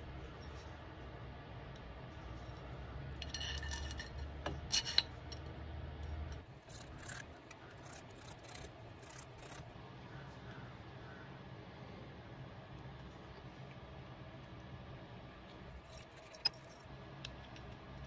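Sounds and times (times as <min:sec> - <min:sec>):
scraping and rubbing strokes: 0:06.6 - 0:09.7.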